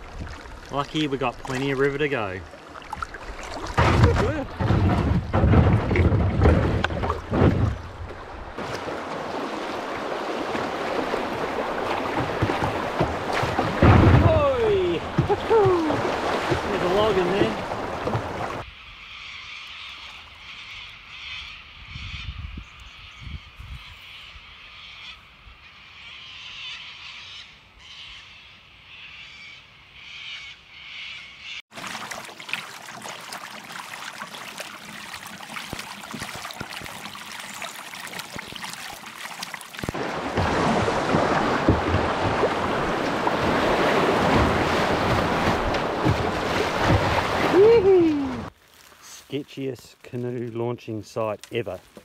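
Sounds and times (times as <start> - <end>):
water washing along kayak hull: 0.0 - 18.7, 31.7 - 52.0
whitewater rushing: 8.6 - 18.6, 39.7 - 48.5
birds calling: 14.3 - 31.6.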